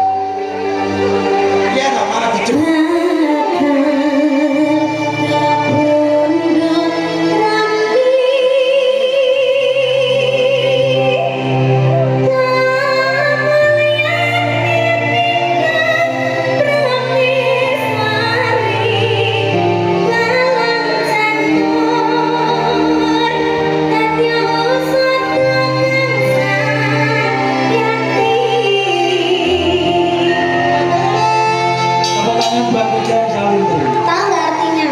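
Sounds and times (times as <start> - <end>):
woman singing with vibrato: 2.4 - 31.8
band with gamelan and bass: 29.7 - 34.9.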